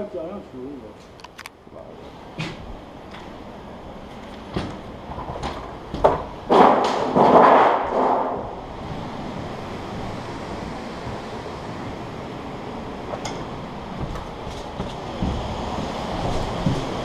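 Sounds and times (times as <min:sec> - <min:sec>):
steady low hiss: 0:00.0 - 0:17.0
sharp knocks: 0:04.5 - 0:08.6, 0:13.1 - 0:17.0.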